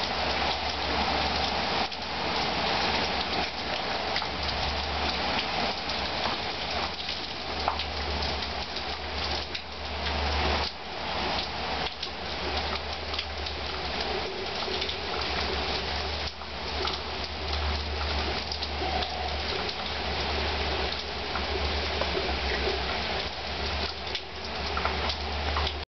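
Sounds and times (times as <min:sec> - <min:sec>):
heavy rain falling: 0:00.0 - 0:25.9.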